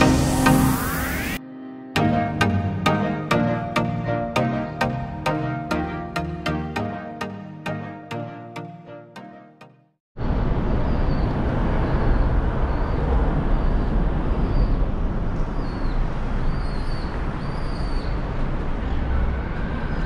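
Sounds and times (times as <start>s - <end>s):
small birds chirping: 10.9s - 14.9s, 15.5s - 18.3s.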